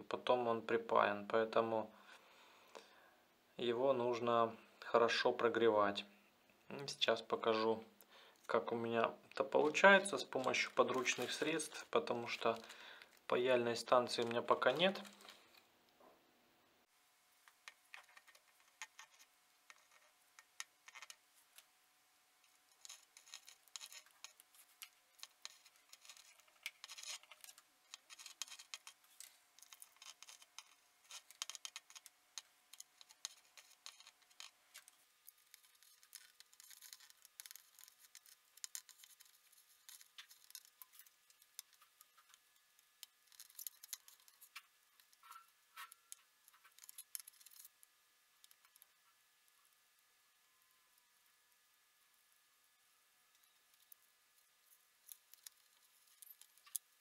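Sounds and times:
soldering iron and tweezers scratching: 17.6s - 21.7s, 22.4s - 49.1s, 53.4s - 56.9s.

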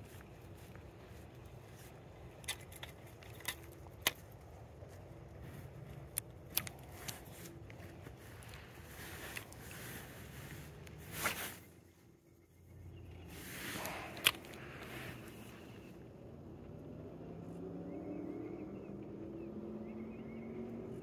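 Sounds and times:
fishing tackle clicks and knocks: 2.2s - 4.4s, 5.8s - 8.6s, 13.8s - 14.9s
fishing rod swish: 11.0s - 11.7s.

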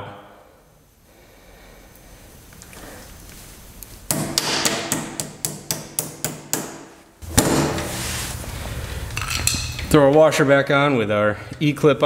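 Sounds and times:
hammer striking steel: 4.1s - 7.9s.

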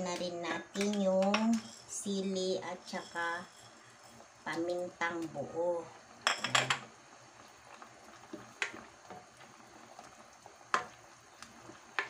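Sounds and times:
coconut milk bubbling: 3.7s - 12.0s.

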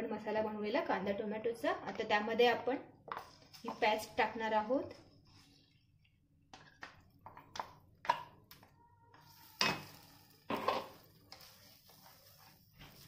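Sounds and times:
wooden spatula scraping paste: 3.1s - 4.1s, 9.1s - 13.0s.

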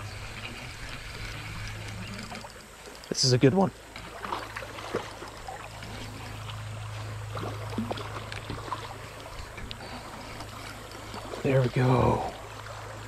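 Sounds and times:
fishing reel whirring: 0.0s - 13.0s
river water moving: 0.0s - 13.0s
reel clicks: 0.2s - 6.4s.

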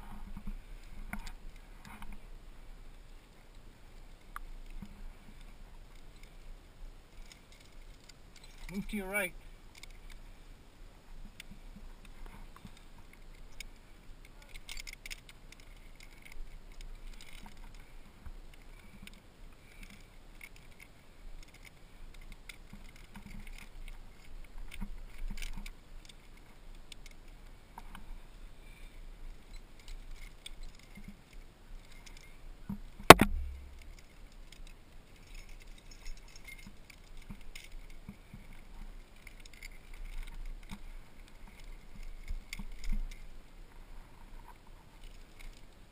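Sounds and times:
climbing gear clinking and jangling: 7.1s - 9.0s, 12.3s - 17.8s, 18.6s - 27.2s, 29.3s - 32.4s, 33.4s - 43.3s, 45.0s - 45.7s
sharp knock: 33.1s - 33.8s.

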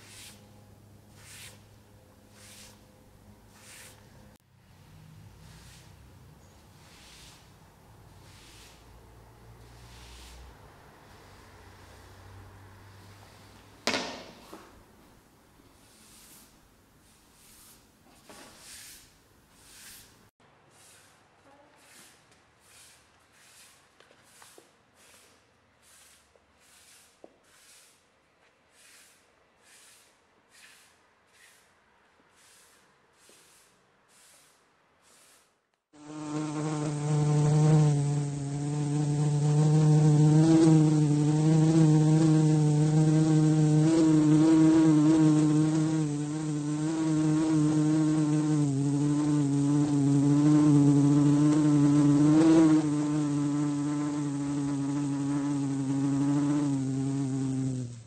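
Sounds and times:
hand rubbing over floor: 0.0s - 0.5s, 1.1s - 2.9s, 3.5s - 4.2s, 6.8s - 9.0s
fly buzzing: 36.0s - 58.0s.

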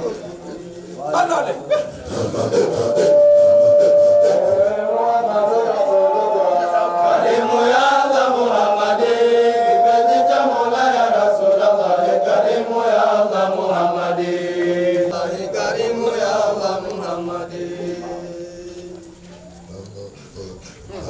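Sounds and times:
voices chanting: 0.0s - 21.0s.

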